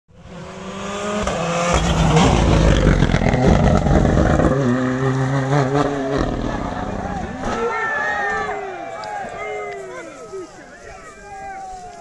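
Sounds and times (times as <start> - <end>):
rally car passing at speed: 0.1 - 9.2.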